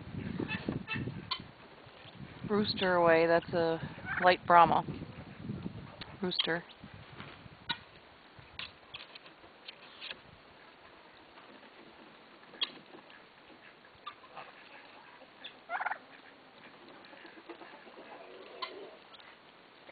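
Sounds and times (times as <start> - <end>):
poultry calling: 12.4 - 19.4.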